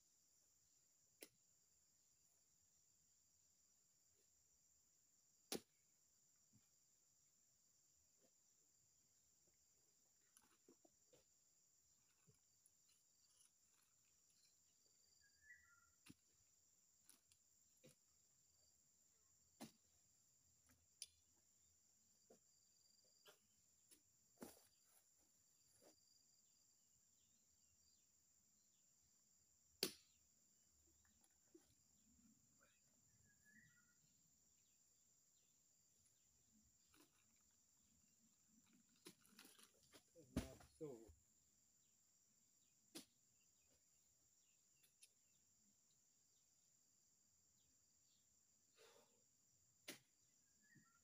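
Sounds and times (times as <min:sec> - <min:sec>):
pole spike knocking into fruit: 0:05.5 - 0:05.7.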